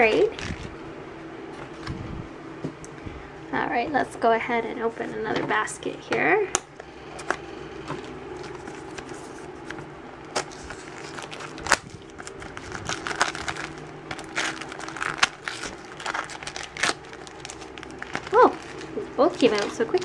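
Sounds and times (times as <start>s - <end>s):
plastic wrap crinkling: 0.0s - 0.8s, 8.3s - 20.0s.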